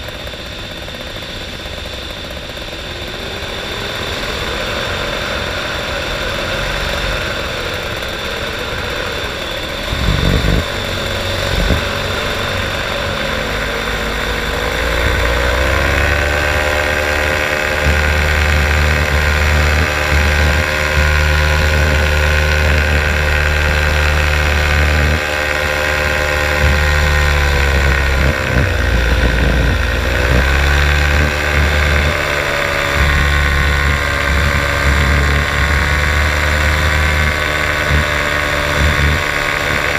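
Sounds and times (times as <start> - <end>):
paraglider engine and propeller running: 0.0 - 39.9
wind rushing over microphone: 9.9 - 12.7.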